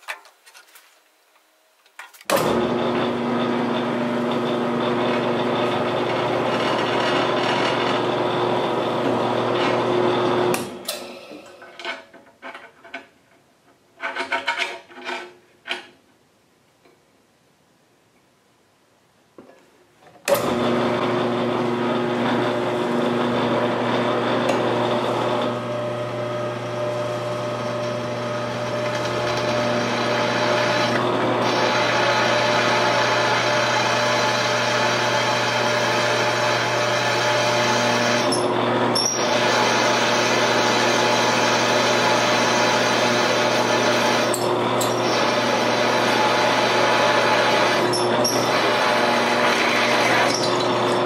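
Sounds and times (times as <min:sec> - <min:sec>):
drill motor hum: 0:02.4 - 0:10.8, 0:20.4 - 0:51.0
drill cutting steel: 0:20.5 - 0:51.0.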